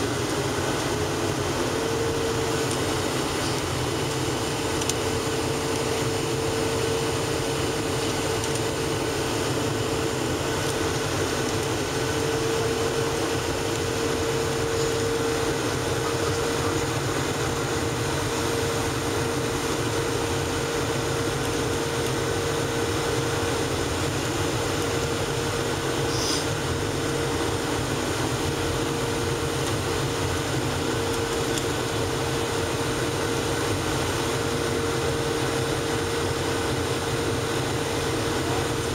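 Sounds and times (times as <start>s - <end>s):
aircraft cabin engine roar: 0.0s - 38.9s.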